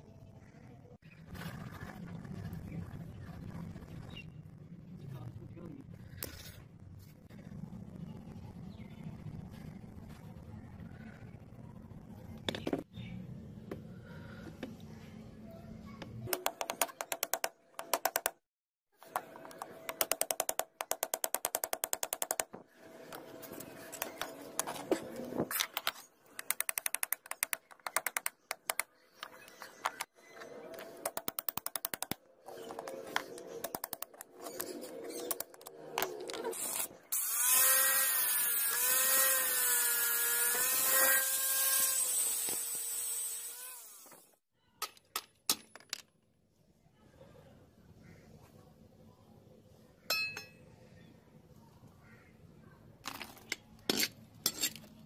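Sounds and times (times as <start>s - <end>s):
power tool whining: 37.1s - 44.3s
screwdriver clicking and scraping metal: 53.1s - 55.0s.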